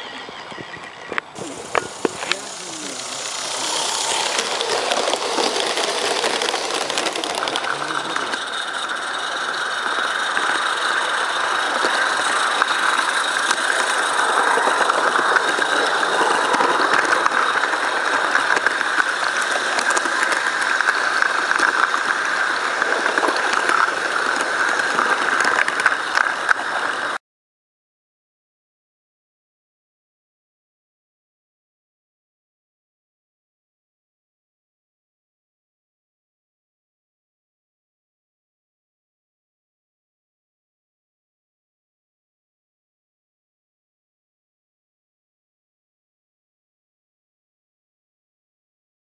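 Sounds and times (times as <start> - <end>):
small wheels clicking on track: 0.0 - 27.2
steam hiss: 1.4 - 27.1.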